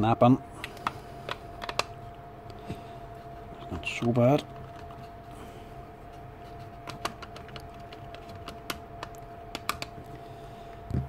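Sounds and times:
faint steady hum: 0:00.0 - 0:11.0
plastic parts clicking: 0:00.6 - 0:01.9.

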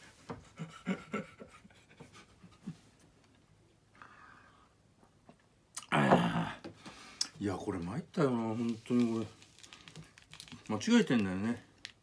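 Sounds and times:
man chuckling softly: 0:00.4 - 0:03.0.

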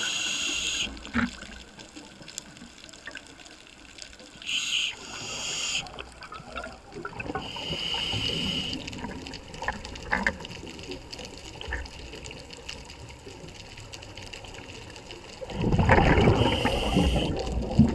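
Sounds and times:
regulator hissing inhalation: 0:00.0 - 0:01.0, 0:04.4 - 0:05.9, 0:07.4 - 0:08.9, 0:16.4 - 0:17.4
crackling water noise: 0:00.0 - 0:17.9
rush of exhaled bubbles: 0:15.4 - 0:17.9.

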